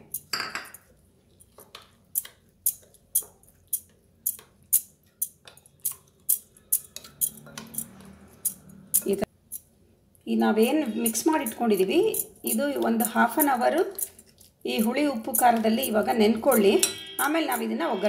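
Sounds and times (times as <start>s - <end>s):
spoon scraping glass bowl: 2.7s - 9.6s, 10.6s - 18.0s.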